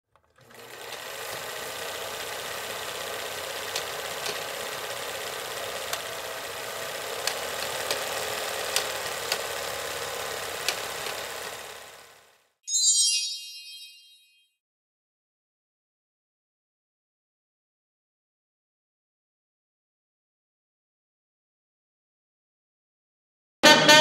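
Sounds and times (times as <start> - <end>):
film projector whirring: 0.2 - 12.5.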